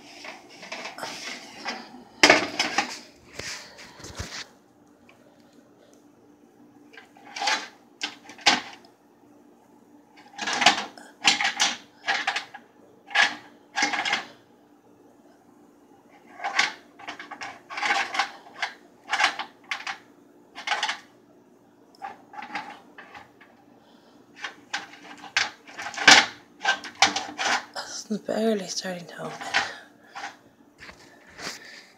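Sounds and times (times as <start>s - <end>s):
pine cones scraping on metal tray: 0.0s - 4.5s, 24.4s - 27.8s, 29.1s - 31.9s
faint steady hum: 0.0s - 31.9s.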